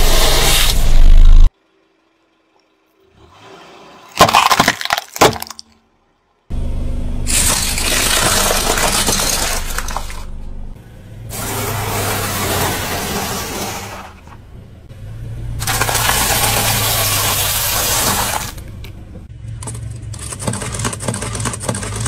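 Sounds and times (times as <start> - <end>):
wooden boxes cracking: 4.2 - 5.7.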